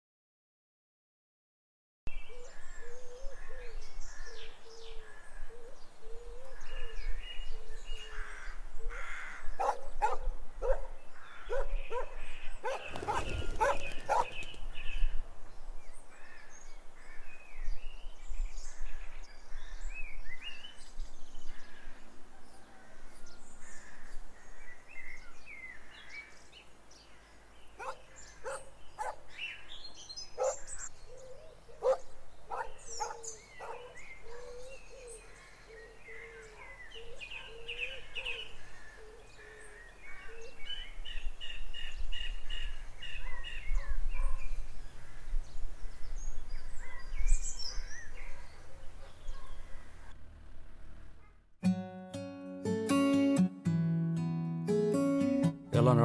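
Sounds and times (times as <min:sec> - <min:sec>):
birds chirping: 0:02.1 - 0:50.1
street ambience: 0:08.4 - 0:15.5, 0:26.7 - 0:40.0.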